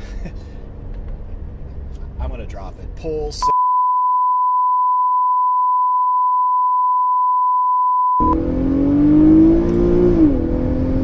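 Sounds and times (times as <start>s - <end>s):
test-tone beep: 3.4s - 8.4s
car engine accelerating: 8.2s - 11.0s.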